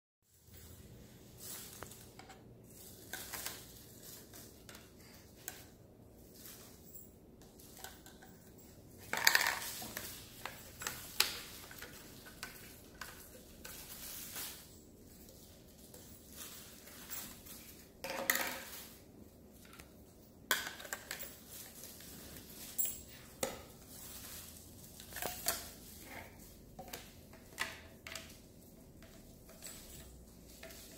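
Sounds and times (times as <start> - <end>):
plastic pipe parts clattering: 1.4 - 30.9.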